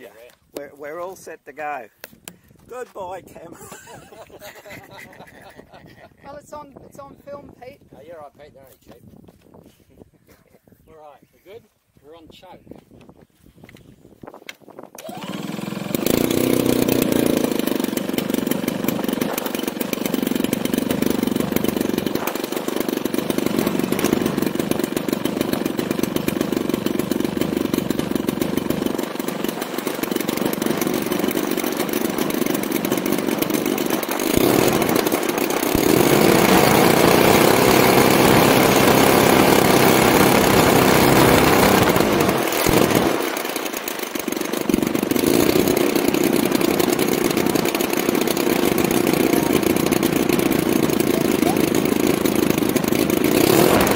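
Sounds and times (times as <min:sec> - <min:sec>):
two-stroke model engine running: 0:15.0 - 0:53.9.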